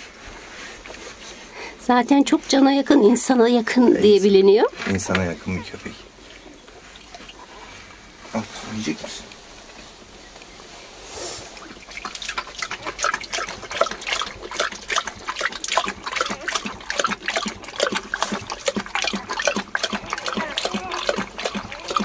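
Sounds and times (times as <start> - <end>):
dog lapping from a bowl: 4.8 - 7.8, 11.5 - 22.0.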